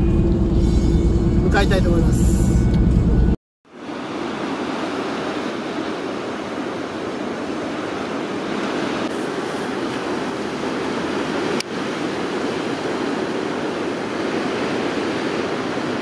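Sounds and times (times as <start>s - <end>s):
ocean waves breaking: 0.0s - 16.0s.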